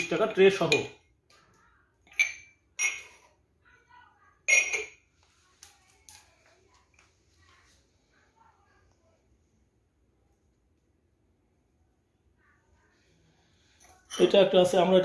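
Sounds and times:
ceramic pots clinking: 0.0 - 1.0, 2.0 - 3.3, 4.5 - 5.1, 13.8 - 14.9.

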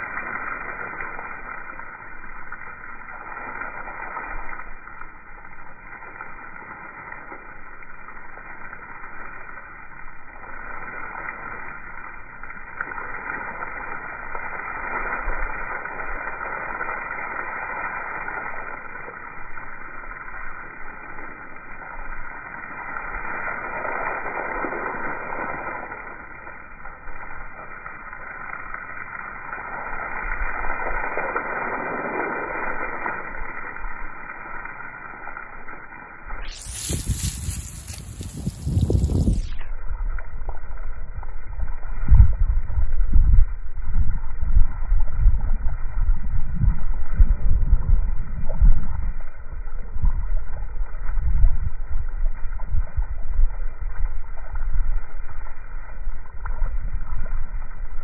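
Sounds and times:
slowed hose spray hiss: 0.0 - 39.6.

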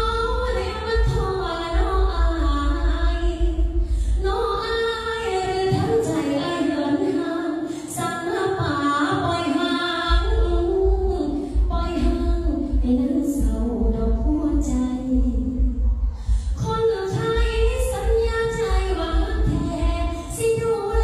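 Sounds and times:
low bass accompaniment: 0.0 - 5.4, 10.1 - 21.0
woman singing into microphone: 0.0 - 21.0.

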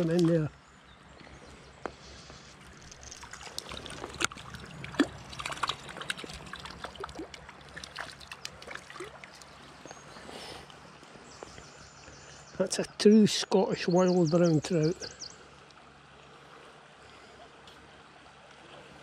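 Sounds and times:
stream water flowing: 0.0 - 19.0
fish splashing at surface: 2.7 - 9.6.

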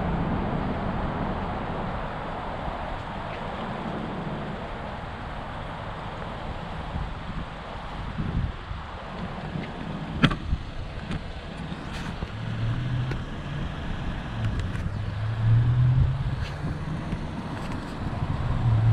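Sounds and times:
vehicle engine humming: 0.0 - 18.9
wind rumble on microphone: 0.0 - 18.9.

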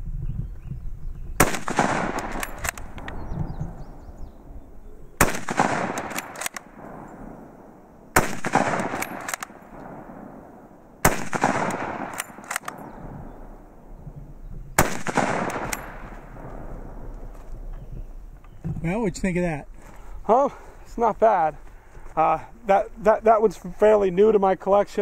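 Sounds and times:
rifle shots with echo: 1.4 - 4.5, 5.2 - 14.0, 14.8 - 17.3
rifle bolt clicks: 1.7 - 3.2, 5.2 - 6.9, 8.4 - 10.0, 11.3 - 13.0, 14.8 - 16.2.

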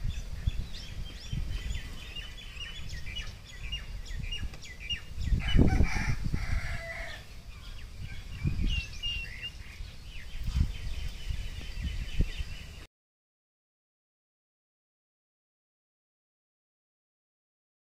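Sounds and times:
rooster crowing: 5.4 - 7.3
high bird chirps: 7.5 - 12.8.

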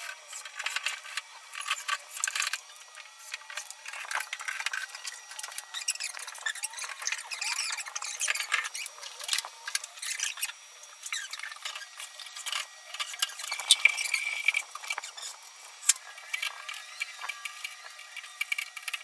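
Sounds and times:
high squeak: 5.7 - 8.9, 10.0 - 12.0.

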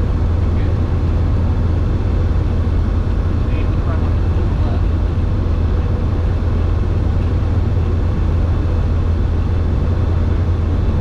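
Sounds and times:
airplane engine drone: 0.0 - 11.0.

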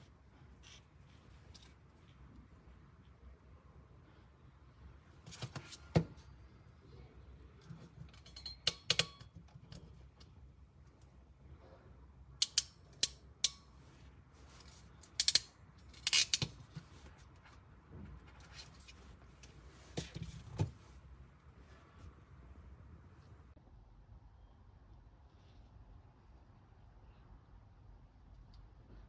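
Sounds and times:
ratchet crimping tool clicking: 12.4 - 13.6.

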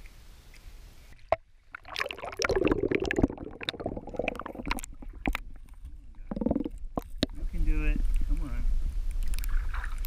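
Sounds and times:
underwater gurgling and bubbling: 1.3 - 7.6.

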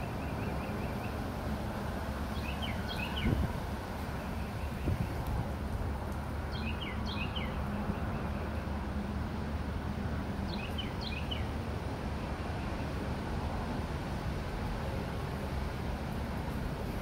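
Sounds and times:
songbird singing: 0.0 - 1.4, 2.2 - 8.8, 10.4 - 13.1
outdoor background rumble: 0.0 - 17.0.

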